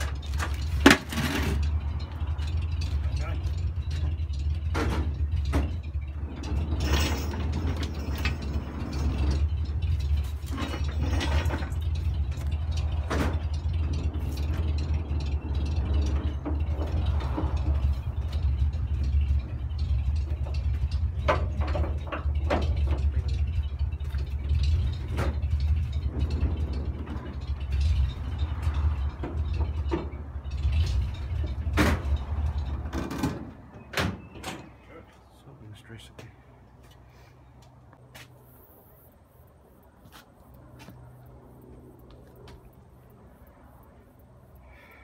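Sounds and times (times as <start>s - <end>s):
winch gears clicking and knocking: 0.0s - 35.4s
engine idling: 0.0s - 45.0s.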